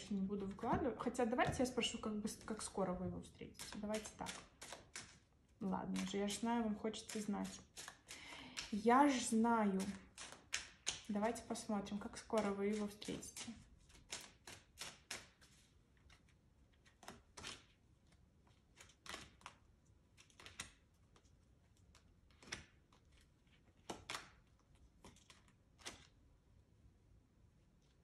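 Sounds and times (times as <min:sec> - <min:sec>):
cards snapping and sliding: 0:07.0 - 0:08.8, 0:12.3 - 0:16.2, 0:16.8 - 0:17.8, 0:18.5 - 0:26.2.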